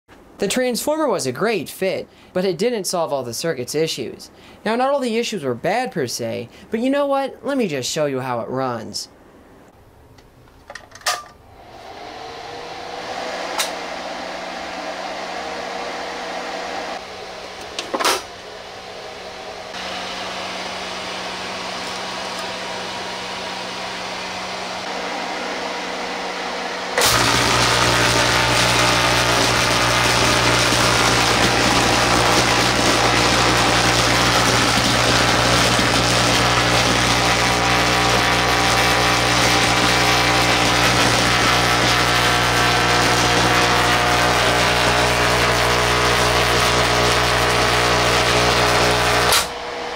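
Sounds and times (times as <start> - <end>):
electrical hum: 11.4 - 49.9
electric arcs buzzing: 26.9 - 49.6.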